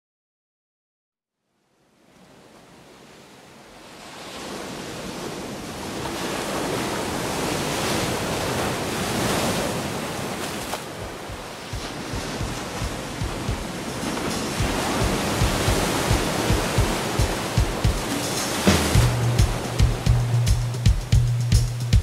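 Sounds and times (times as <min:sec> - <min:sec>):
waves washing in: 0:02.0 - 0:22.0
low thumps: 0:11.0 - 0:22.0.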